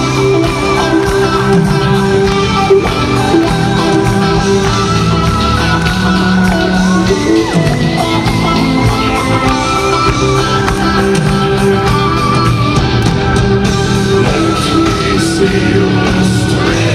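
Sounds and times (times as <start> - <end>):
metal band playing live: 0.0 - 16.9.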